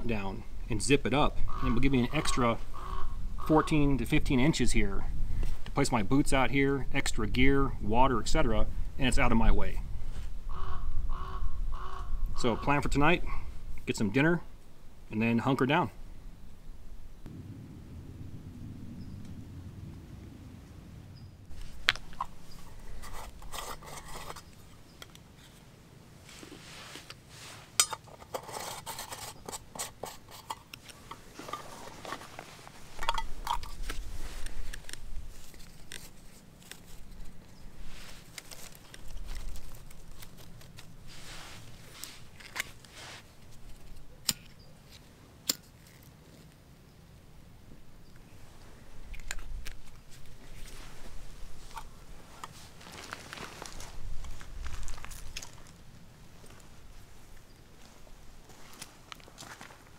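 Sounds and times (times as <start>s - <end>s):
gear scraping and rustling: 21.5s - 25.6s, 26.2s - 46.6s, 48.4s - 59.9s.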